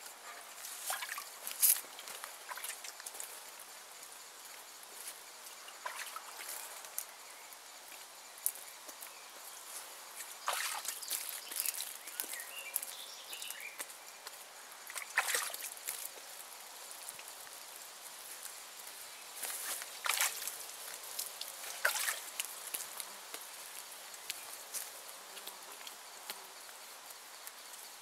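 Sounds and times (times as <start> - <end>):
water sloshing and trickling: 0.3 - 3.2, 5.6 - 6.8, 10.2 - 12.9, 14.8 - 16.2, 19.4 - 22.7
water splashing on hide: 0.7 - 3.2, 5.7 - 6.6, 10.3 - 12.3, 14.8 - 16.1, 19.4 - 23.4.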